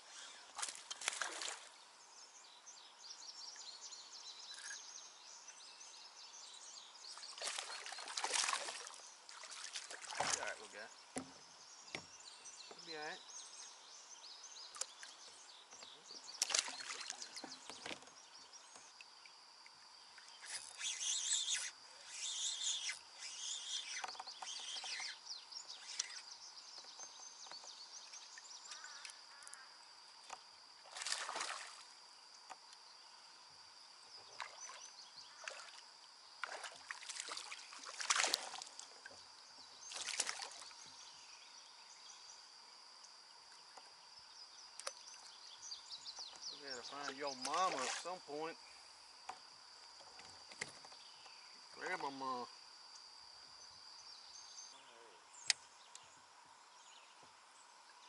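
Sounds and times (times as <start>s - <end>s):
kayak paddle splashing: 7.3s - 10.6s, 30.8s - 31.9s, 36.4s - 39.1s, 47.0s - 48.2s
water sloshing against hull: 7.3s - 12.1s, 34.2s - 39.3s, 46.2s - 48.2s.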